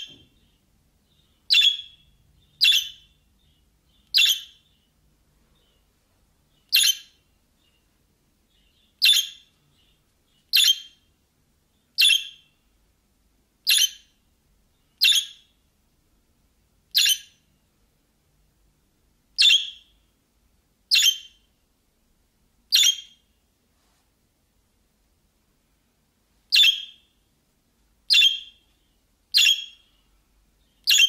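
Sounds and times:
budgerigar sharp calls: 0:01.5 - 0:02.0, 0:02.6 - 0:03.1, 0:10.5 - 0:11.0, 0:12.0 - 0:12.5, 0:15.0 - 0:15.4, 0:19.4 - 0:19.9, 0:26.5 - 0:27.0, 0:28.1 - 0:28.6, 0:29.3 - 0:29.9.

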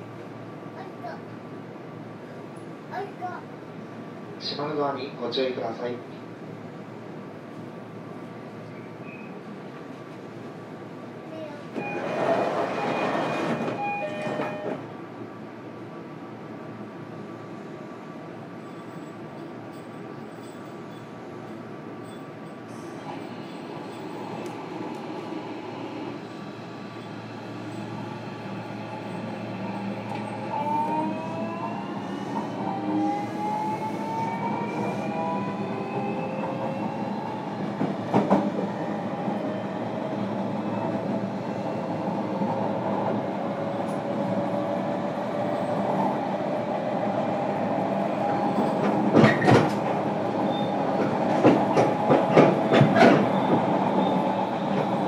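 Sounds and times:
train running noise: 0:09.6 - 0:15.3, 0:18.2 - 0:55.0.

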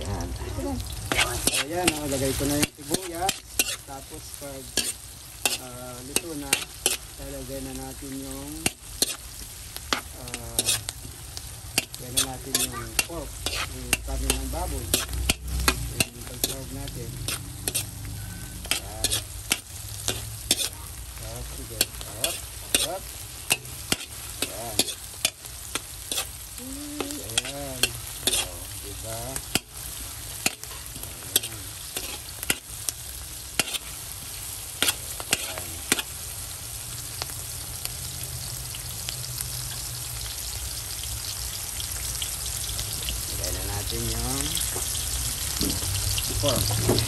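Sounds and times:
onion sizzling in hot oil: 0:00.0 - 0:47.0
metal spoon scraping pan: 0:01.1 - 0:04.0, 0:04.6 - 0:07.1, 0:08.6 - 0:09.2, 0:09.9 - 0:11.0, 0:11.8 - 0:20.8, 0:21.6 - 0:26.4, 0:27.0 - 0:28.7, 0:30.4 - 0:32.7, 0:33.6 - 0:34.0, 0:34.8 - 0:36.1.

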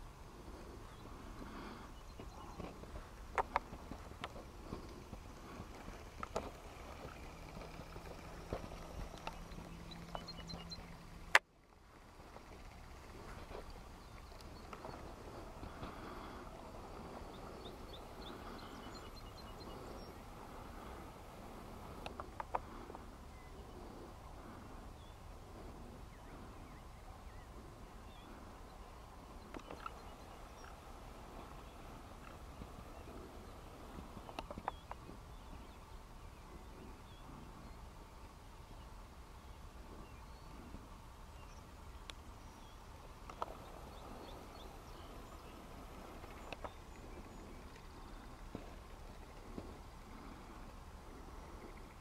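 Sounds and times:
faint bird chirps: 0:00.4 - 0:11.4, 0:12.0 - 0:52.0
faint high bird chirps: 0:07.0 - 0:11.3
wind rumble on microphone: 0:12.0 - 0:52.0.

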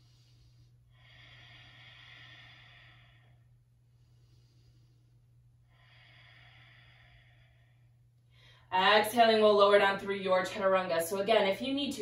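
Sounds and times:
woman breathing slowly: 0:00.0 - 0:08.7
faint low hum: 0:00.0 - 0:12.0
woman speaking: 0:08.7 - 0:12.0.

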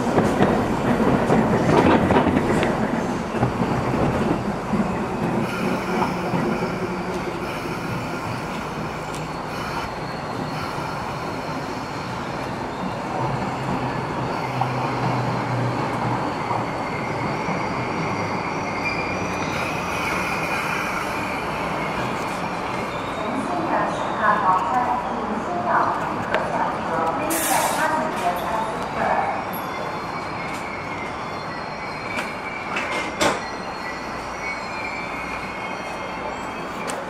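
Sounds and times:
electric train rumbling: 0:00.0 - 0:37.0
high wheel squeal: 0:05.4 - 0:25.3, 0:27.5 - 0:37.0.

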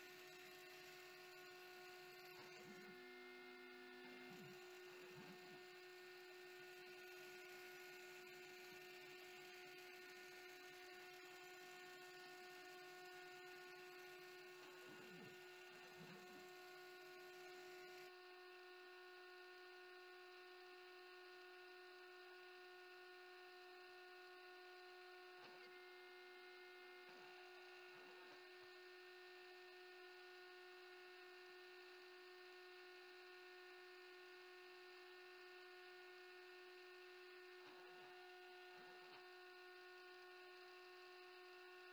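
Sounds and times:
router spindle humming: 0:00.0 - 0:19.0.

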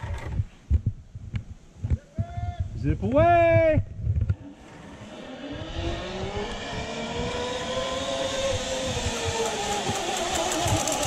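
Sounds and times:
steady rushing noise: 0:04.0 - 0:11.0
zipline pulleys whining: 0:04.4 - 0:11.0.

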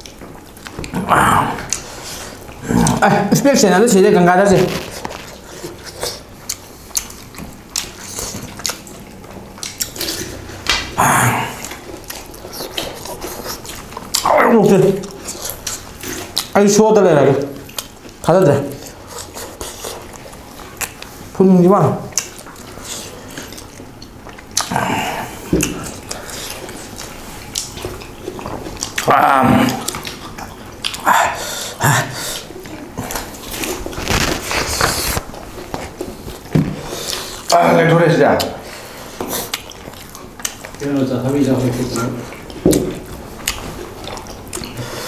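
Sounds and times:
chewing and lip-smacking: 0:00.0 - 0:45.0
gulping water: 0:00.0 - 0:45.0
throaty vocal sound: 0:00.8 - 0:03.5, 0:10.0 - 0:11.9, 0:24.6 - 0:26.6, 0:29.0 - 0:33.3
breathy hiss: 0:31.0 - 0:33.2.

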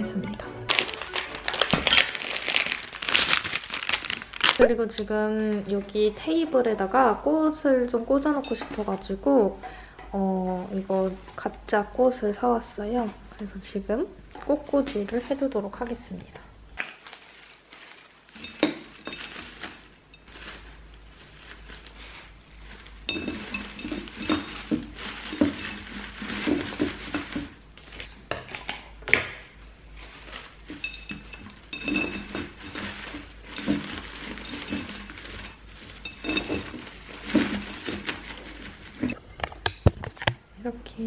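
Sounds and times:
stems tapping glass vase: 0:23.0 - 0:27.5, 0:30.7 - 0:38.3.

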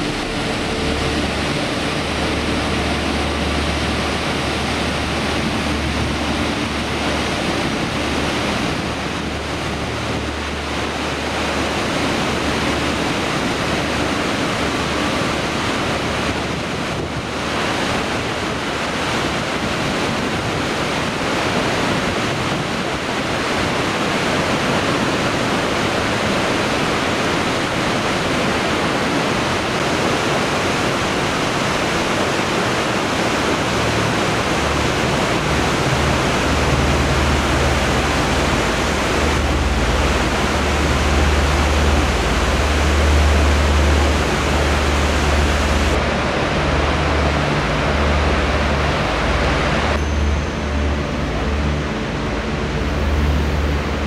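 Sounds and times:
deep low rumble: 0:00.0 - 0:13.0, 0:32.9 - 0:54.0
waterfall roaring: 0:00.0 - 0:54.0.

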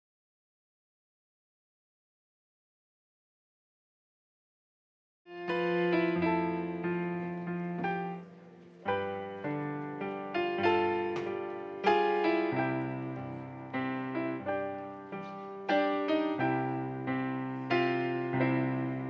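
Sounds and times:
piano playing slow chords: 0:05.3 - 0:19.0.

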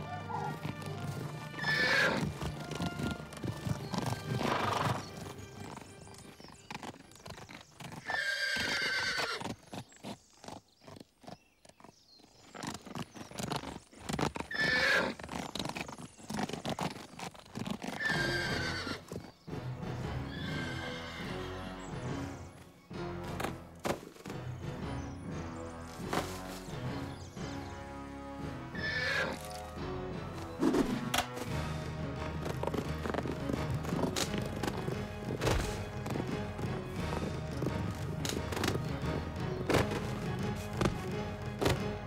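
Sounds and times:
horses whinnying: 0:00.0 - 0:05.9, 0:06.7 - 0:09.8, 0:12.9 - 0:19.3, 0:20.1 - 0:21.9, 0:28.6 - 0:29.7
background music: 0:00.0 - 0:09.2, 0:17.8 - 0:42.0
hoofbeats: 0:00.0 - 0:42.0.

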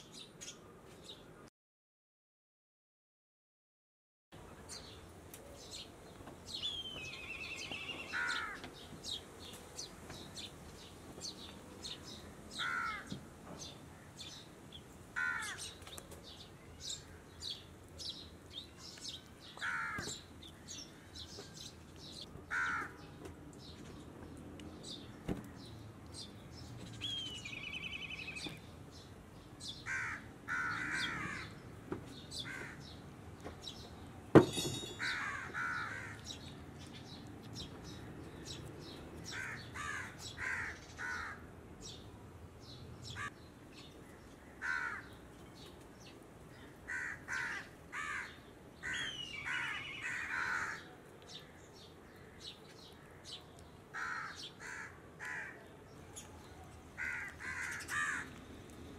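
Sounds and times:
crows cawing: 0:08.0 - 0:08.8, 0:12.6 - 0:13.2, 0:15.2 - 0:15.7, 0:19.6 - 0:21.2, 0:22.5 - 0:23.0, 0:29.8 - 0:31.6, 0:32.4 - 0:32.9, 0:35.0 - 0:36.4, 0:39.3 - 0:41.5, 0:44.4 - 0:45.2, 0:46.8 - 0:50.9, 0:53.9 - 0:55.7, 0:57.0 - 0:58.4.

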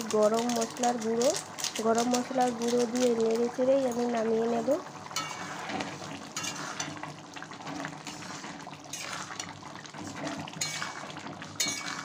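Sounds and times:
curry simmering and sloshing: 0:00.4 - 0:12.0
ladle clinking against pan: 0:05.2 - 0:05.5, 0:10.6 - 0:11.0, 0:11.6 - 0:12.0.

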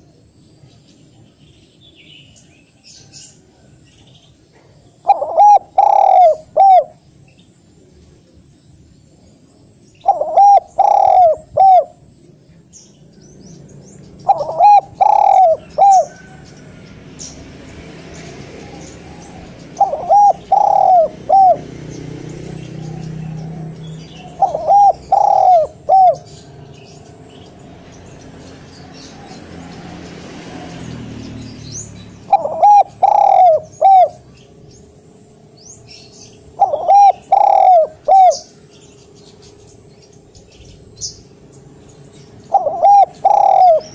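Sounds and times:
dove cooing: 0:04.8 - 0:07.0, 0:10.0 - 0:12.0, 0:14.2 - 0:16.4, 0:18.6 - 0:26.6, 0:32.2 - 0:34.3, 0:36.5 - 0:38.7, 0:42.5 - 0:43.9.

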